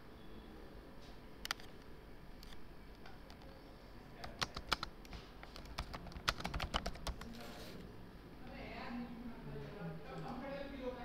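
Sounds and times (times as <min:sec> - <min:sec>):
keyboard typing: 0:04.2 - 0:07.5.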